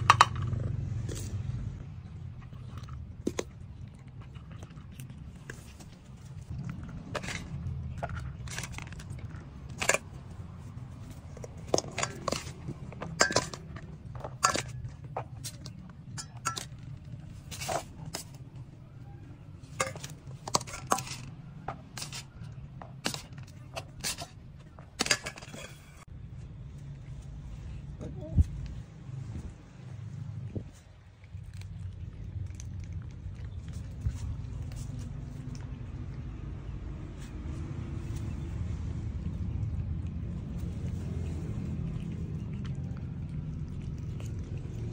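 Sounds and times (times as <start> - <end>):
spoon clinking on plastic bowls: 0.0 - 1.4, 7.0 - 26.0.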